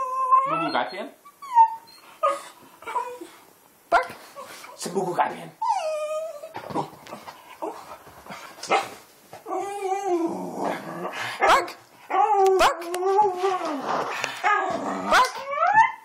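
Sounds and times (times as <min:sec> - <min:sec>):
small dog whine-howling: 0:00.0 - 0:03.3, 0:14.4 - 0:16.0.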